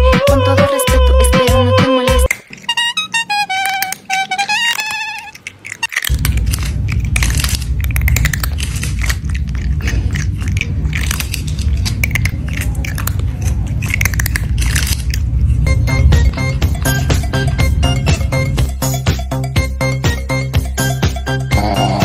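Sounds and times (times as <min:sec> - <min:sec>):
cat chewing food: 0:02.3 - 0:19.0
steady low rumble: 0:06.1 - 0:19.8
short melodic tune: 0:15.7 - 0:21.5.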